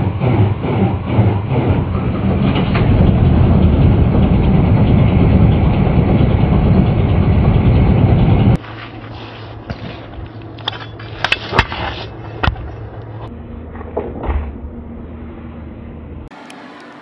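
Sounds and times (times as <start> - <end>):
truck diesel engine idling: 0.1 - 8.6.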